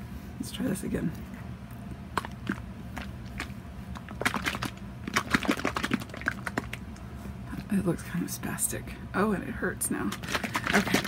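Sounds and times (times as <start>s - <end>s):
plastic bottle shaken clattering: 3.3s - 6.8s, 10.0s - 11.0s.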